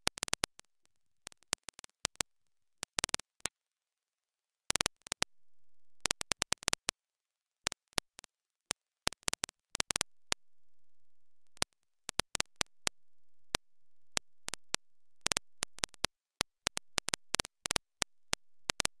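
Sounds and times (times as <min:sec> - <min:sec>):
sharp clicks: 0:14.5 - 0:18.1, 0:18.7 - 0:18.9.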